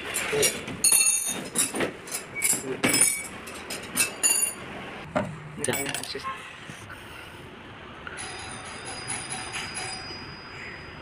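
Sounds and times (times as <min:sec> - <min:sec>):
metal tools clinking on metal frame: 0:00.0 - 0:04.7, 0:05.6 - 0:06.2, 0:08.2 - 0:10.5.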